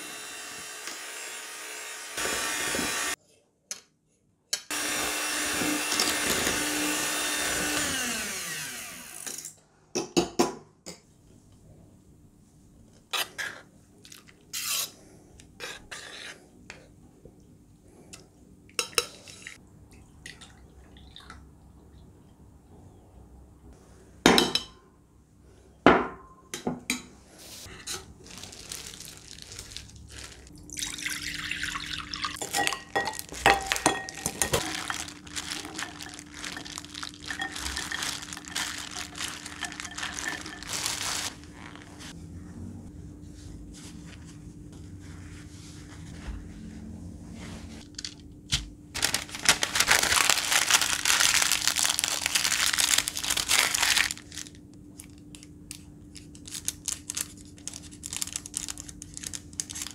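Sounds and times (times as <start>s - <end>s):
spatula scraping metal bowl: 15.6s - 16.4s
plastic wrap crinkling: 27.6s - 31.0s, 31.8s - 42.1s, 48.9s - 59.9s.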